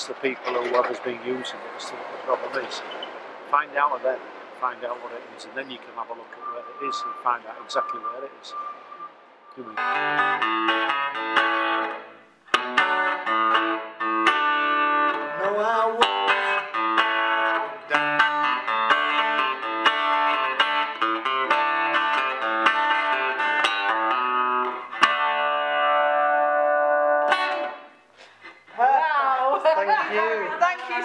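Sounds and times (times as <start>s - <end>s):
acoustic guitar picking: 9.6s - 28.0s.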